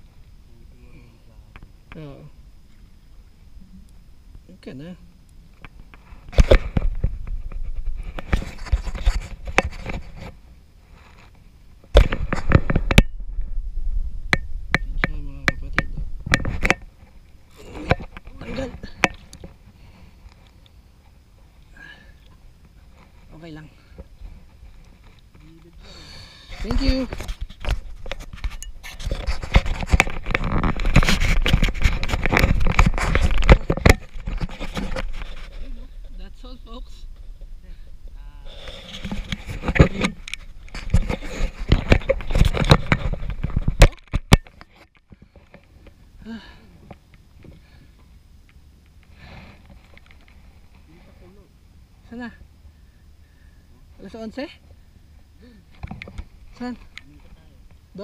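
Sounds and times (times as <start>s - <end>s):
handling noise rubbing and scraping: 5.6s - 13.6s, 14.3s - 21.6s, 22.3s - 25.8s, 26.4s - 46.0s.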